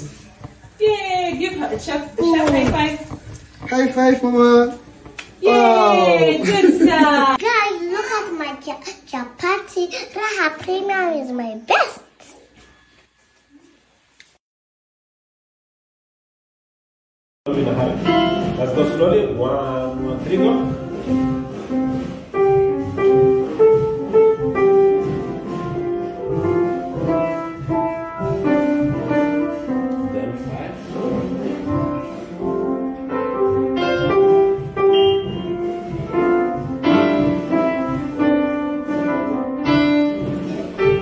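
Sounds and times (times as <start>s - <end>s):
slow piano melody: 17.5s - 41.0s.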